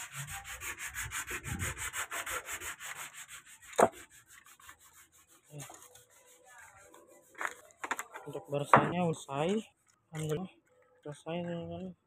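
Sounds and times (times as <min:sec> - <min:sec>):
rapid scraping strokes: 0:00.0 - 0:08.8.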